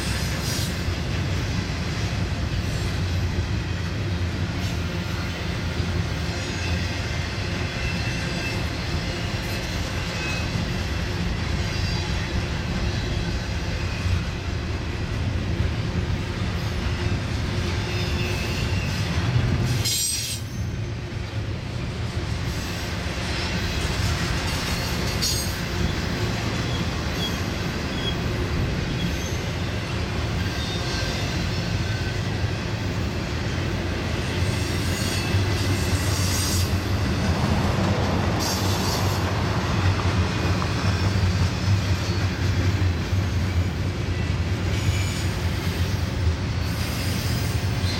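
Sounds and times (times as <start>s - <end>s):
train wheels rumbling on rails: 0.0s - 47.9s.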